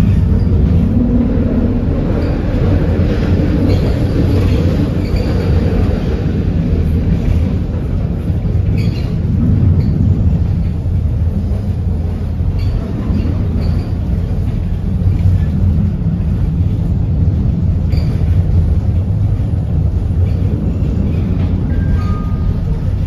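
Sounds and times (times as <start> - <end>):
tram rumbling on rails: 0.0 - 23.0.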